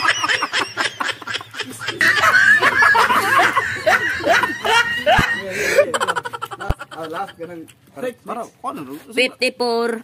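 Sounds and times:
young men laughing: 0.0s - 7.7s.

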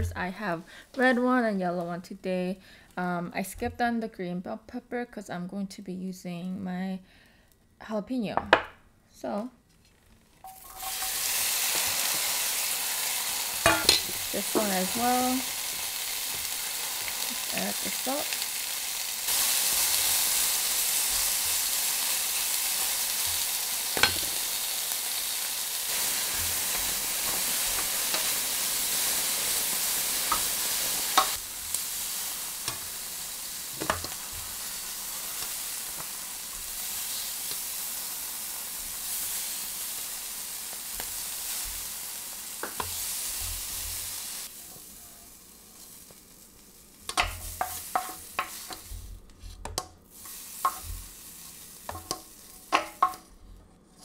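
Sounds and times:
utensils clinking on pan: 10.4s - 12.0s, 13.6s - 15.3s, 31.1s - 31.4s
peppers sizzling in oil: 10.4s - 54.0s.

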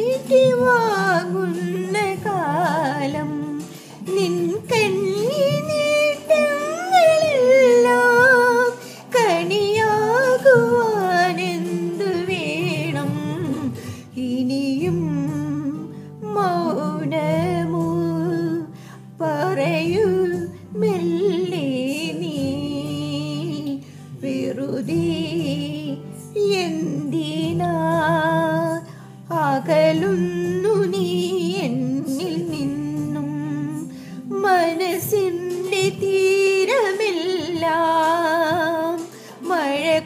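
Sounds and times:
film song with vocals: 0.0s - 40.0s
woman humming and singing along: 0.0s - 40.0s.

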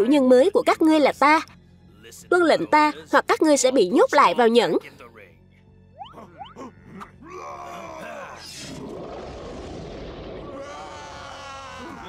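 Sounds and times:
creatures groaning and yelling: 6.1s - 12.0s.

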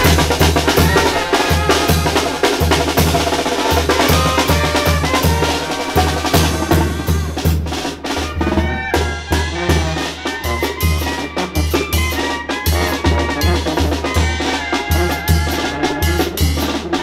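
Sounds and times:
bass drum beat: 0.0s - 7.7s
brass band playing: 0.0s - 17.0s.

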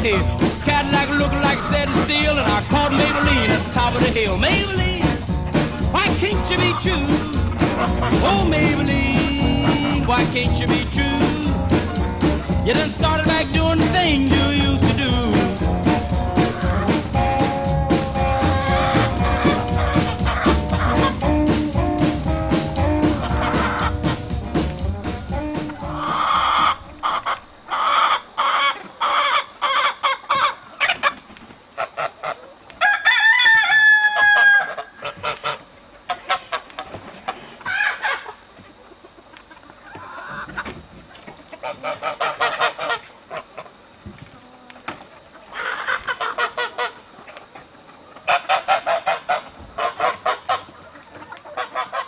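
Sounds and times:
chickens clucking: 0.0s - 52.0s
rooster crowing: 25.8s - 29.9s, 32.8s - 35.0s.

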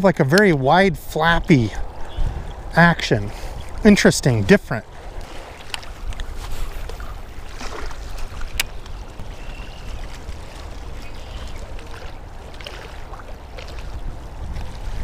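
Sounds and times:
water lapping at bank: 0.0s - 15.0s
wind buffeting microphone: 0.0s - 15.0s.

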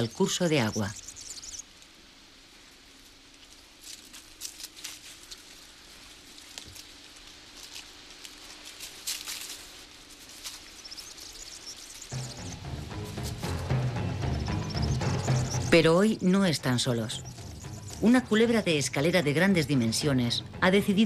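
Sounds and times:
faint outdoor background: 0.0s - 21.0s.

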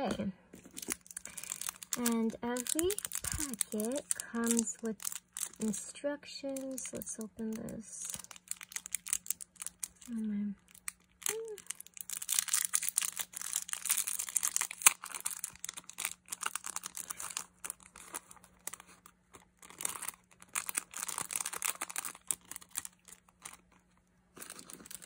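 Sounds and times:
packaging crinkling and crackling: 0.6s - 25.0s.

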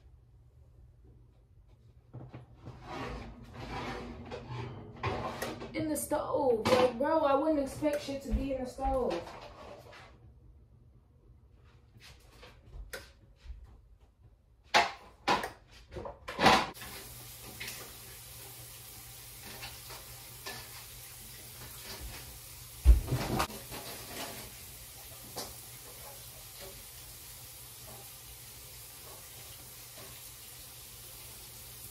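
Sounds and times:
metal baking pans clattering: 2.7s - 5.9s, 6.5s - 7.1s, 21.5s - 26.8s
kitchen tap running: 16.8s - 31.9s.

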